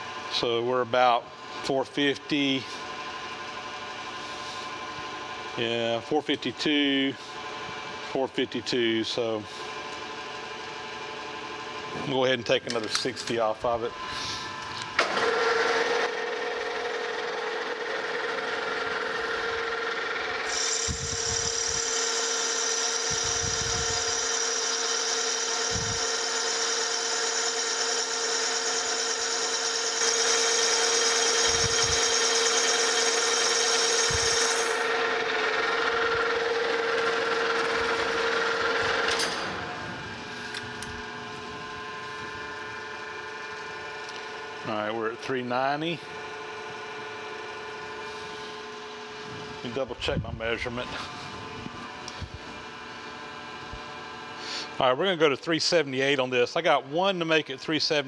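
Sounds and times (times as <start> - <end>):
metal lathe running: 1.4 - 45.3.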